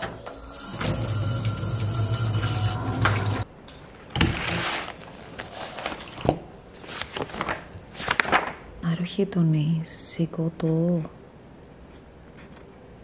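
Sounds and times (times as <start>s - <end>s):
water running from shower tap: 0.4s - 3.5s
notebook pages turning: 4.2s - 8.6s.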